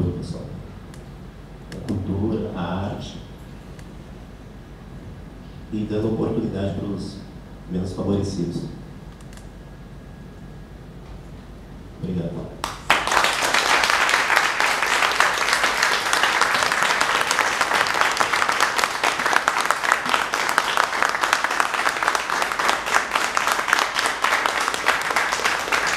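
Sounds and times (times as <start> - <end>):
audience applauding: 12.6 - 25.9.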